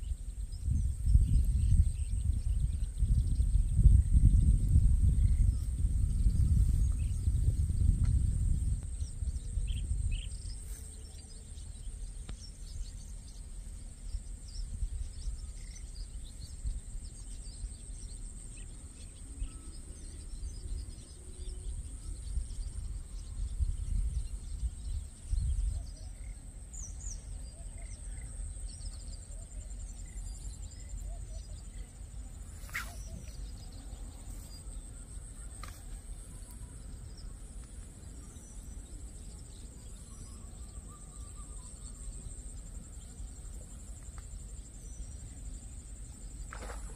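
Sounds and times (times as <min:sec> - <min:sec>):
wind rumbling on microphone: 0:00.0 - 0:46.9
bird chirps: 0:32.6 - 0:37.3.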